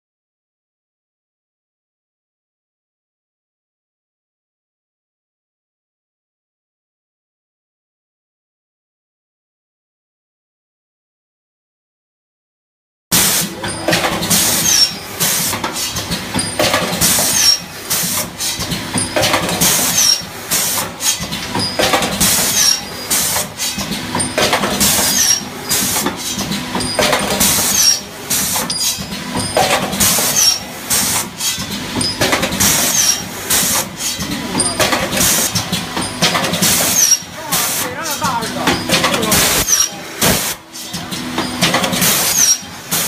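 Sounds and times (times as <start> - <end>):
machine hissing: 13.1 - 43.0
machine punching strokes: 13.1 - 43.0
steady machine hum: 13.4 - 43.0.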